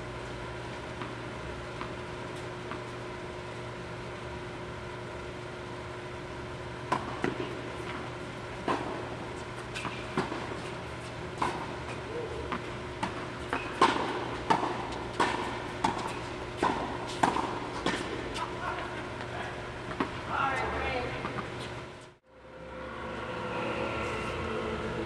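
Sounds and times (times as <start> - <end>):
steady hum: 0.0 - 25.0
tennis balls bouncing on hard court: 1.0 - 3.0, 6.9 - 21.7
tennis balls struck by rackets: 6.9 - 21.7.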